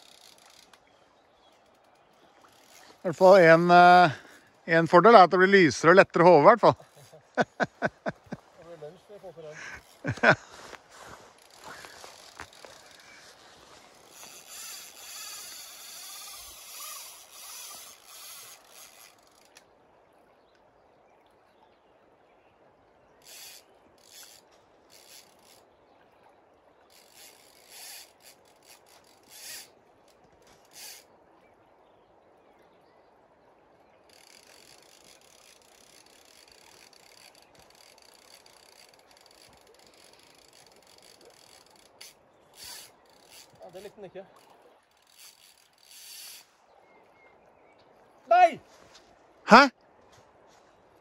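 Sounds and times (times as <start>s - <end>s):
fishing reel drag ratcheting: 0.0s - 0.8s, 1.6s - 4.1s, 11.3s - 19.6s, 23.2s - 25.6s, 26.9s - 31.1s, 34.1s - 46.5s.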